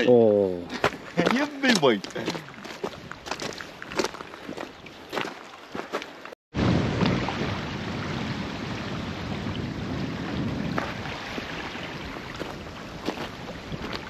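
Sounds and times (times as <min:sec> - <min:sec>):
wind buffeting microphone: 0:06.6 - 0:14.0.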